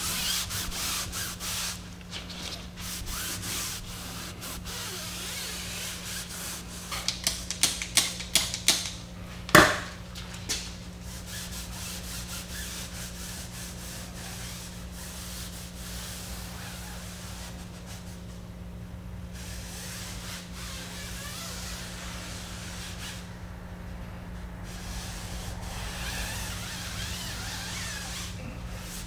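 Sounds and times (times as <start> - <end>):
cloth rubbing tire: 0.0 - 7.0, 10.5 - 18.4, 19.4 - 23.4, 24.6 - 29.0
steady low hum: 0.0 - 29.0
loud knock: 9.5 - 9.9.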